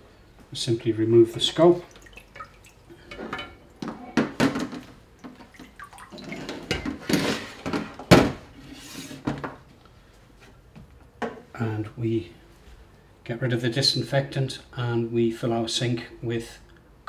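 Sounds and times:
water splashing and dripping: 1.8s - 2.9s, 5.2s - 6.8s.

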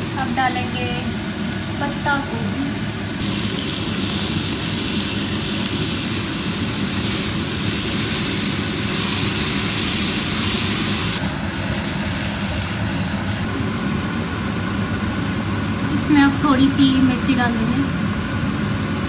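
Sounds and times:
vegetables sizzling in oil: 0.0s - 13.5s
low mechanical hum: 0.0s - 19.0s.

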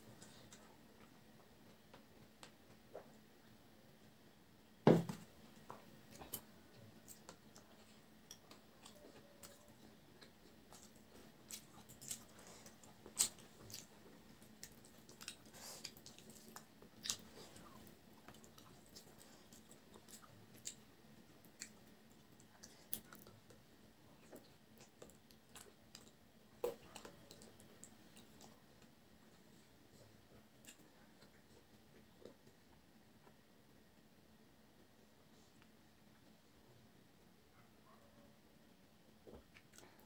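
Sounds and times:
chewing: 6.1s - 32.7s, 39.3s - 40.0s.

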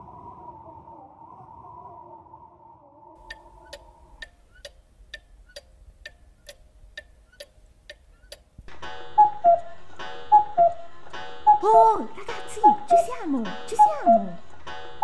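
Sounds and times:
clock ticking: 3.2s - 9.7s, 10.3s - 14.8s.

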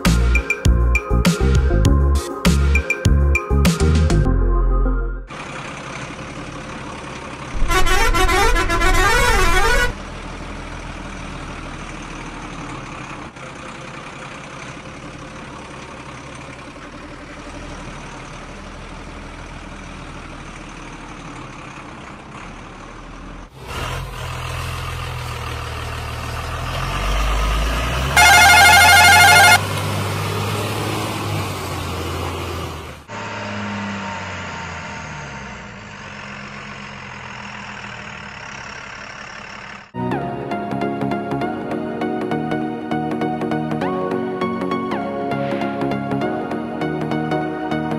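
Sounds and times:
heavy truck engine running: 5.3s - 47.9s
truck horn blast: 7.6s - 10.0s, 28.1s - 29.8s.

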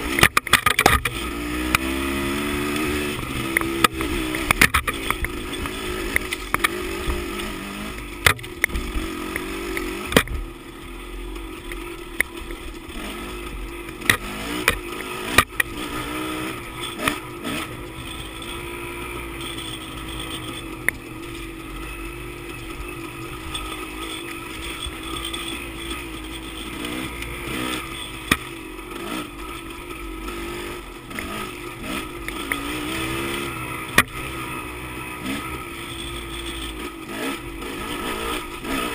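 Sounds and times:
dirt bike engine: 0.0s - 38.9s.

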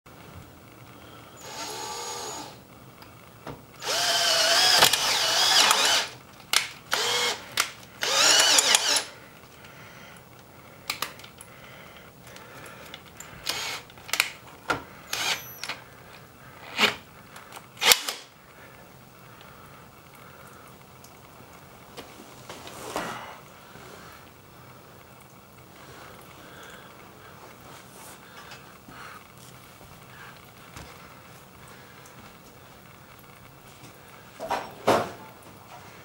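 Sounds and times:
power drill whining: 1.4s - 2.6s, 3.8s - 9.2s, 13.2s - 14.4s, 15.1s - 15.8s, 17.8s - 18.3s.

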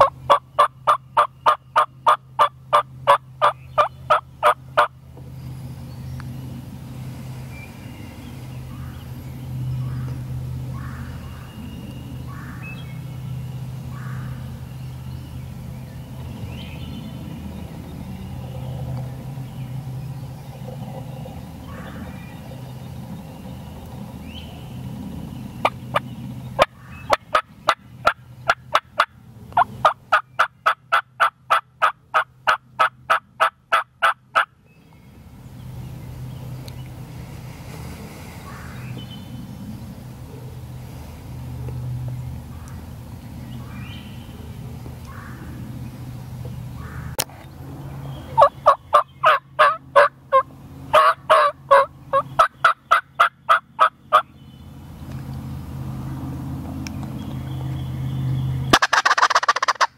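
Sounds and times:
wild turkey calling: 0.0s - 4.9s, 48.3s - 54.3s, 58.7s - 59.9s.

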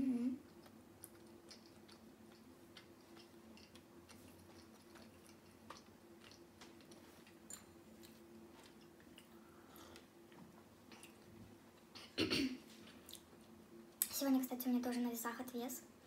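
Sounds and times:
faint steady hum: 0.0s - 16.0s
chewing: 0.4s - 11.9s.

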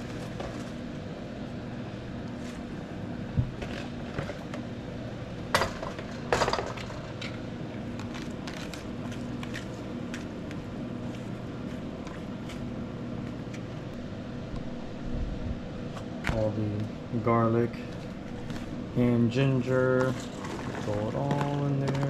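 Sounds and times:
steady low hum: 0.0s - 22.0s
water boiling in a pot: 20.1s - 21.7s.

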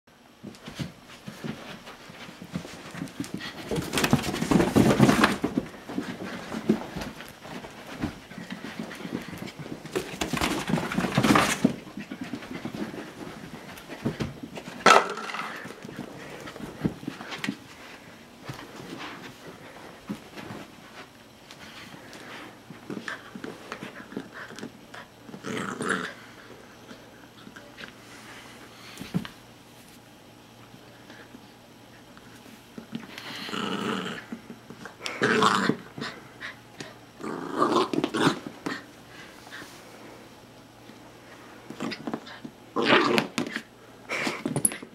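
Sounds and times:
puppy growling: 24.0s - 26.3s, 33.2s - 36.6s, 37.2s - 38.9s, 42.7s - 44.3s.

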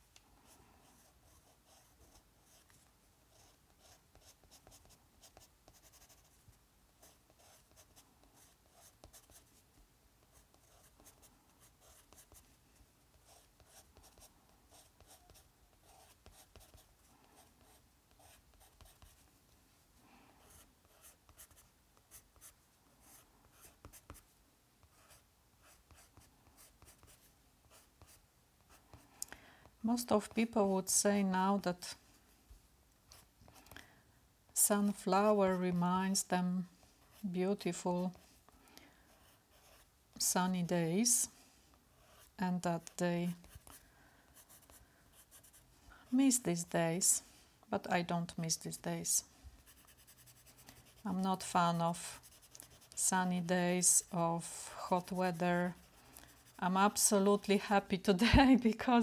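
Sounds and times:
pencil scratching on paper: 0.4s - 6.4s, 7.0s - 9.6s, 10.2s - 12.4s, 13.2s - 19.2s, 20.4s - 24.2s, 24.8s - 29.0s, 39.1s - 39.9s, 42.0s - 45.6s, 49.6s - 57.1s.

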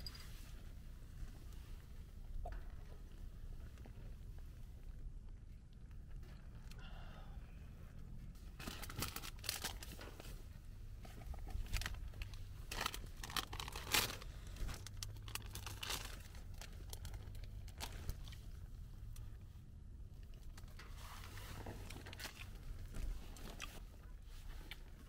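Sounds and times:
plastic wrapper crinkling and tearing: 8.6s - 10.0s, 11.6s - 18.3s.

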